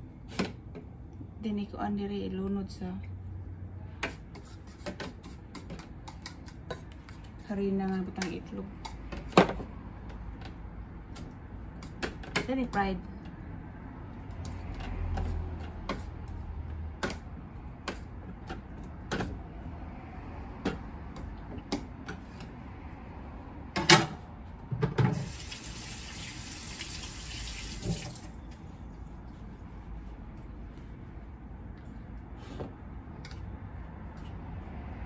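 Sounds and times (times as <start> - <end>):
kitchen tap running: 25.1 - 28.3.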